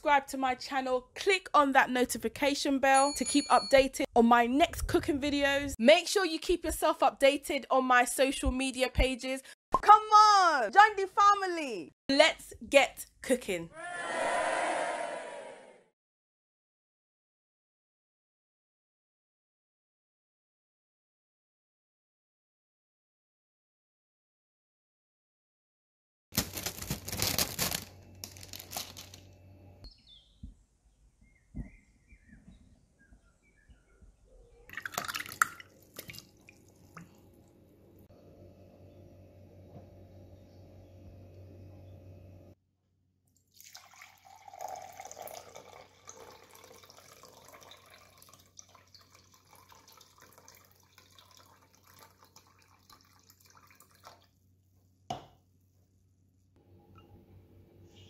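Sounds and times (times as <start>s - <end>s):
plastic punnet crinkling: 26.4s - 29.3s
juice pouring into jug: 34.7s - 37.5s, 43.5s - 54.4s.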